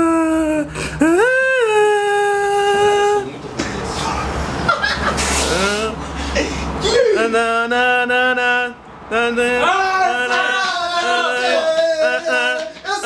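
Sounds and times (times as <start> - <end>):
man humming a melody: 0.0 - 3.3, 5.5 - 6.0, 6.8 - 12.6.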